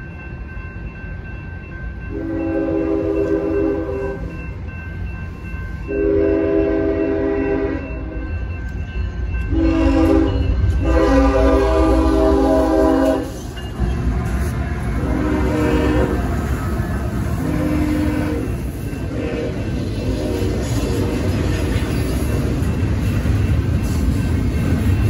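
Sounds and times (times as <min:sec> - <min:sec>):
diesel locomotive rumble: 0:00.0 - 0:25.0
train wheel noise: 0:00.0 - 0:25.0
locomotive air horn blasts: 0:02.1 - 0:04.3, 0:05.9 - 0:08.2, 0:09.5 - 0:13.4, 0:15.0 - 0:16.3, 0:17.4 - 0:21.5.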